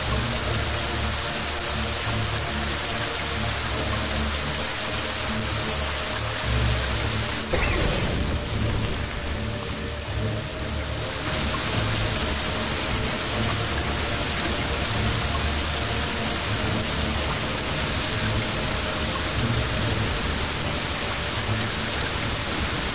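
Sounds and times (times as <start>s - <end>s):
low uneven rumbling: 7.5s - 14.1s.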